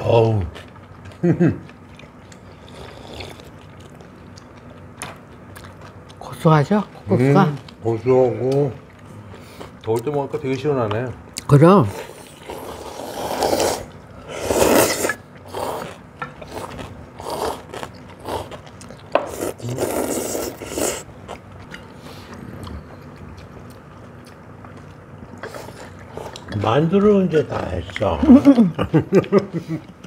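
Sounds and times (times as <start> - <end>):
people slurping noodles: 2.4 - 3.6, 11.9 - 21.2, 21.9 - 23.2.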